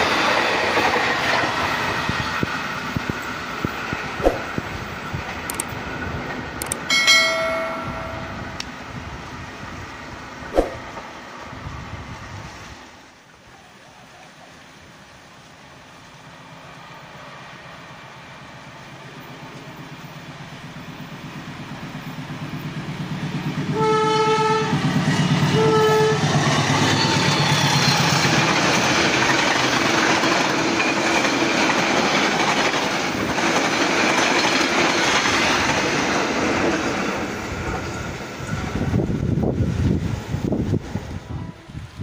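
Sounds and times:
train coaches rushing past: 0.0s - 13.0s, 16.2s - 41.8s
train horn blasts: 23.6s - 26.4s.

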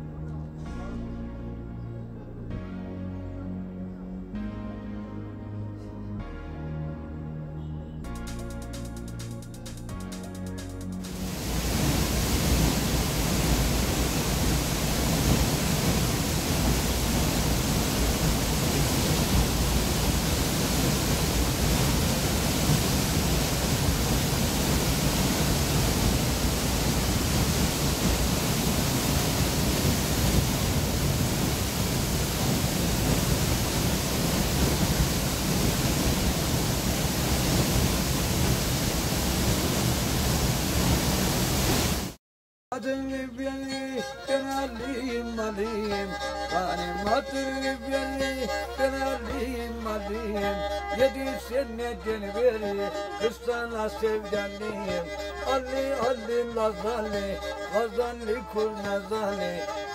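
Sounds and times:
waterfall rushing: 11.0s - 42.2s.

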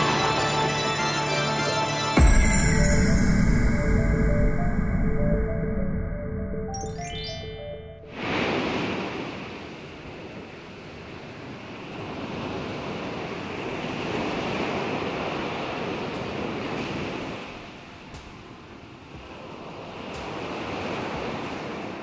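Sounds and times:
short rising music run: 0.0s - 8.4s
ocean waves breaking: 8.1s - 22.0s.

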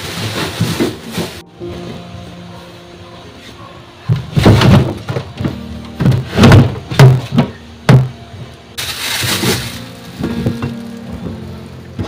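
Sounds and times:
plastic drawer knocks and bumps: 4.1s - 8.1s.

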